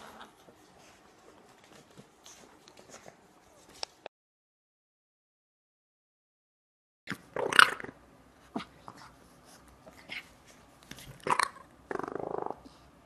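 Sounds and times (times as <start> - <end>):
puppy growling: 0.0 - 0.5, 11.1 - 12.7.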